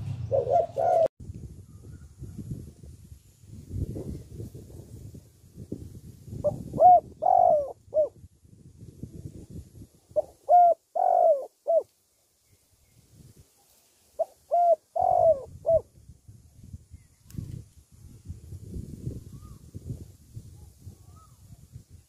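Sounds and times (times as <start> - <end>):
dove cooing: 0.0 - 1.1, 6.4 - 8.2, 10.2 - 11.9, 14.2 - 15.9.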